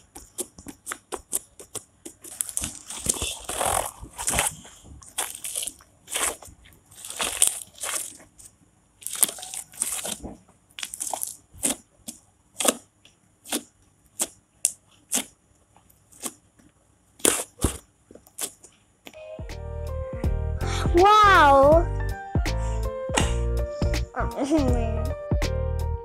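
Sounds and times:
slime squishing: 0.0 - 16.6, 17.2 - 18.8.

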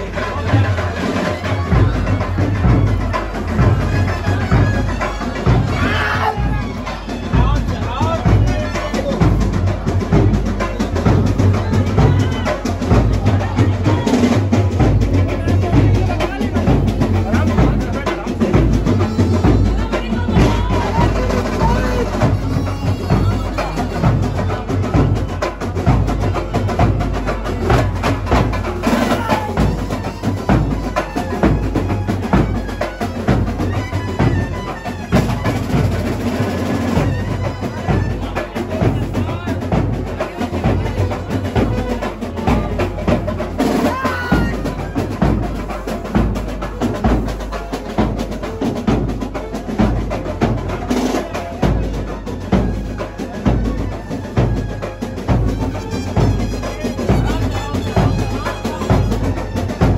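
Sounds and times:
bass drum beat: 0.0 - 59.9
drums: 0.0 - 59.9
saxophone melody: 18.8 - 24.7.

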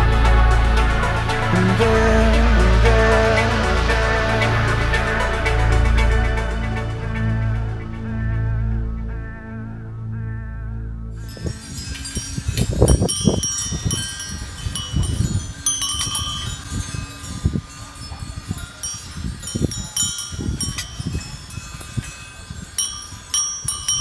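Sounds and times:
wind rumbling on microphone: 11.1 - 24.0
brass bells jingling: 11.2 - 24.0.

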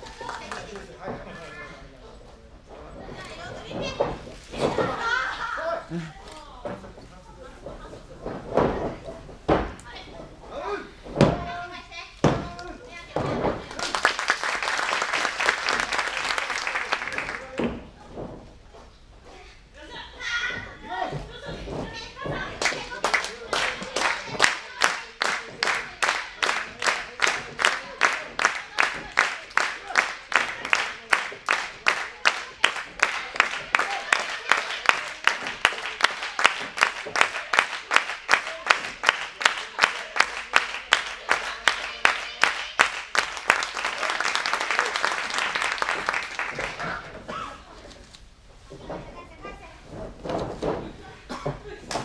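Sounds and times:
audience clapping: 0.0 - 1.2, 13.6 - 17.8, 22.6 - 47.2.

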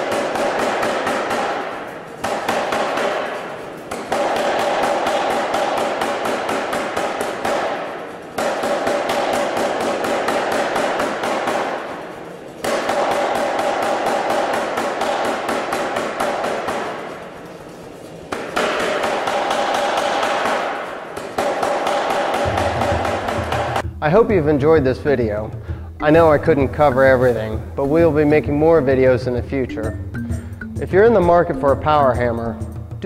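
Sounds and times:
power hammer striking hot steel: 0.0 - 17.3, 18.3 - 23.8.

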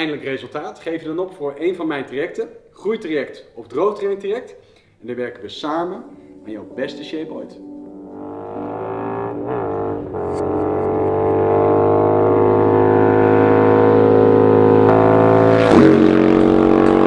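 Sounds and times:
motorcycle engine passing: 8.2 - 17.0.

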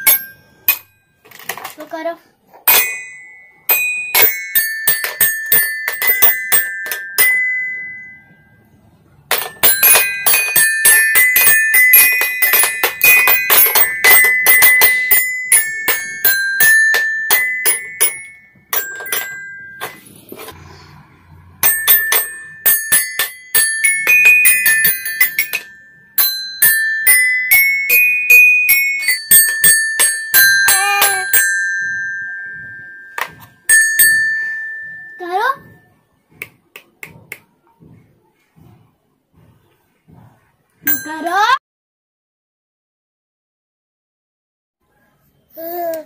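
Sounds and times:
toy xylophone struck rapidly: 2.7 - 8.3, 9.3 - 19.9, 21.6 - 35.8.

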